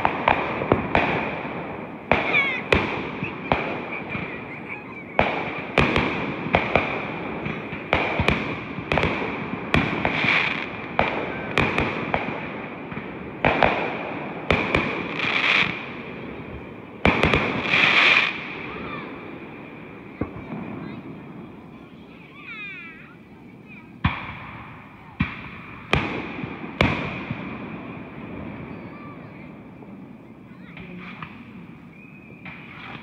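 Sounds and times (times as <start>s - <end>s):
fireworks crackling hiss: 0.0s - 33.0s.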